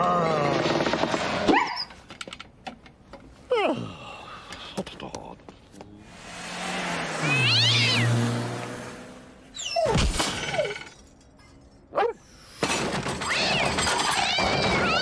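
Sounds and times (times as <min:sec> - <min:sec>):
high wavering squeals: 0:07.2 - 0:08.2.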